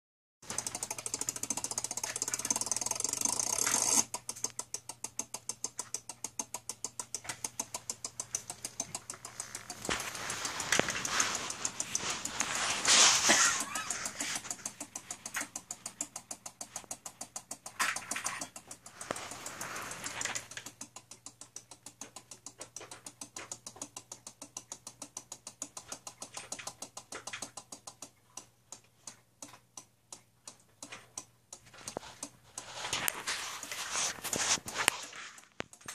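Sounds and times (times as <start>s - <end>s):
relays clicking rapidly: 0.4s - 28.5s
rustling hiss: 8.9s - 14.6s.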